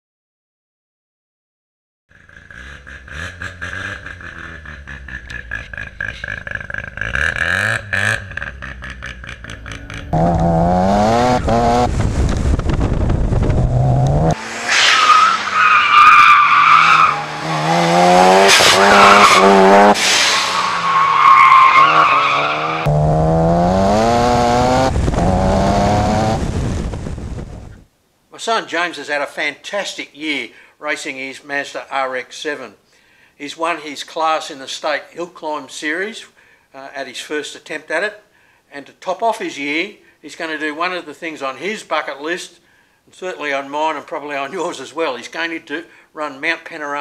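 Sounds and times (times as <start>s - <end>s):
race car engine revving: 2.2s - 15.6s, 16.5s - 21.1s, 21.8s - 26.9s
tyres squealing: 14.9s - 17.5s.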